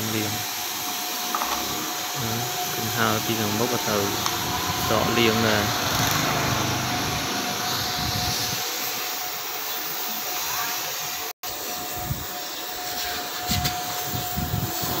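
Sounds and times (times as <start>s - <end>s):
machine hissing with thin whine: 0.0s - 15.0s.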